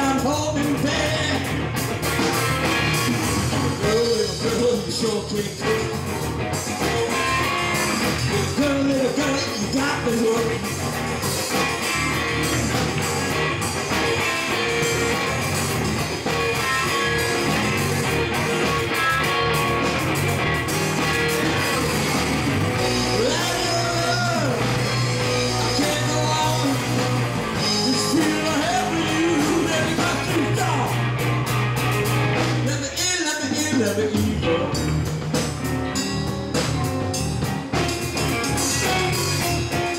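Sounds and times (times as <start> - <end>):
man singing: 0.0 - 1.6, 3.7 - 6.1, 8.3 - 10.7, 22.8 - 31.1, 32.6 - 35.0
rock band playing: 0.0 - 39.9.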